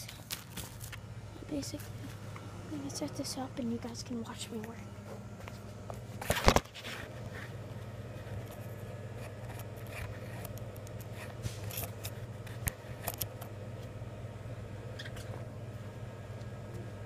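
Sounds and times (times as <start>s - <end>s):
rustling of paper packs: 0.0s - 1.0s
low background hum: 0.0s - 17.0s.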